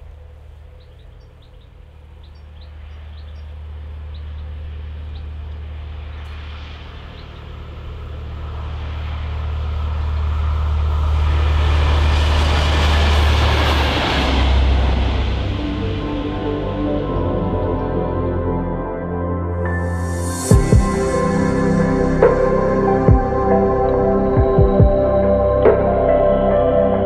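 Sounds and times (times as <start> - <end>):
diesel locomotives passing: 0.0 - 18.4, 19.6 - 27.0.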